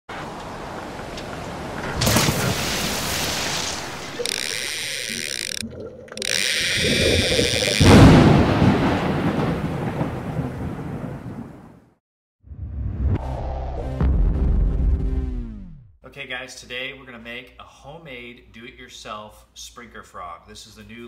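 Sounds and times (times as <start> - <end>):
harsh buzzy noise: 2.0 - 5.6, 6.2 - 8.1
deep boom: 7.8 - 11.1, 12.5 - 15.9.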